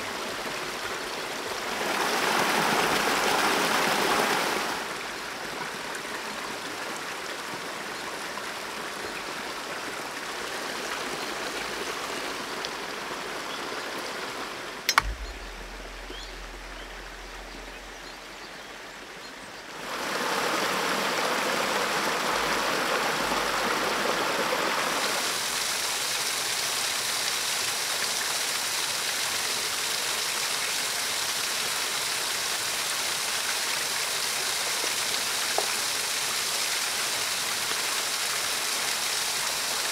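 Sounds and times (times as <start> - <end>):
stream and waterfall rushing: 0.0 - 39.9
sharp crack: 14.9 - 18.3.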